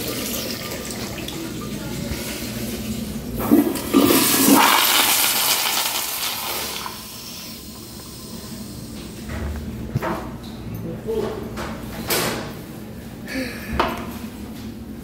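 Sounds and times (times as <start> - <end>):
toilet flushing: 0.0 - 9.3.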